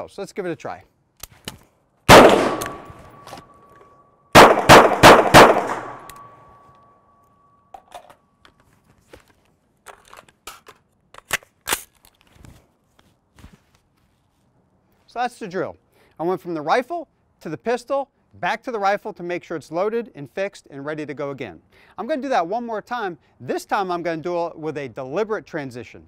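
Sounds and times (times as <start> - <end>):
rifle shot: 2.1 - 3.5, 4.3 - 6.4
pistol shots with echo: 2.1 - 3.6, 4.3 - 6.5
gun handling clicks and rattles: 2.3 - 3.9, 7.7 - 12.4
high ringing: 2.5 - 4.3, 5.8 - 8.4.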